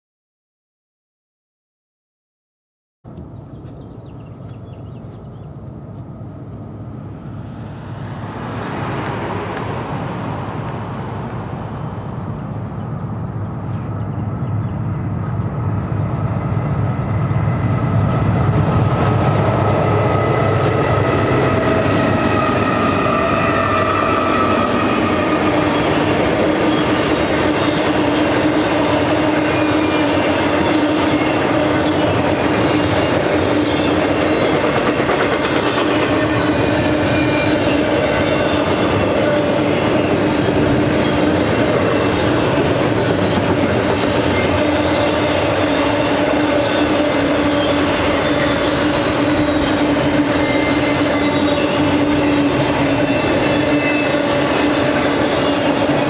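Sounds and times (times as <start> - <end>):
diesel locomotive rumble: 3.1 - 56.0
wheels whining on rails: 3.1 - 56.0.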